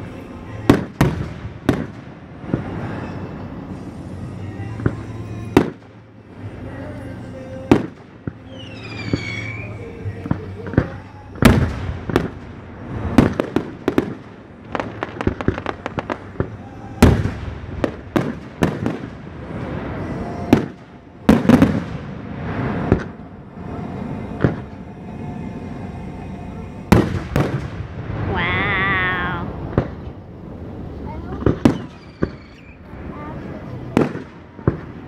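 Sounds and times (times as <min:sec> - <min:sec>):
fireworks bangs: 0:00.0 - 0:24.8, 0:26.9 - 0:35.0
crackling firework pops: 0:00.7 - 0:02.7, 0:05.6 - 0:05.9, 0:07.7 - 0:09.6, 0:10.2 - 0:19.8, 0:29.7 - 0:30.2, 0:31.4 - 0:32.8, 0:34.0 - 0:35.0
heavy firework booms: 0:00.7 - 0:03.6, 0:05.6 - 0:05.8, 0:07.7 - 0:09.6, 0:10.3 - 0:23.3, 0:26.9 - 0:30.8, 0:31.4 - 0:33.2, 0:33.9 - 0:35.0.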